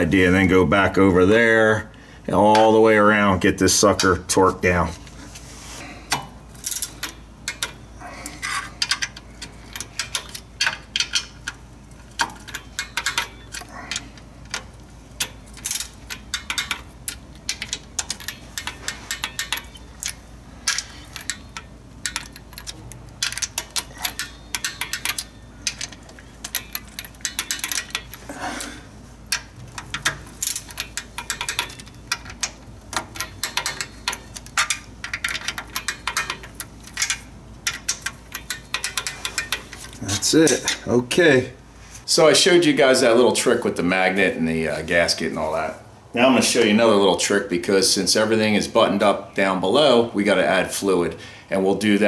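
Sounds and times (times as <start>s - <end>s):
torque wrench ratcheting and clicking: 8.4s - 28.2s, 29.3s - 40.0s.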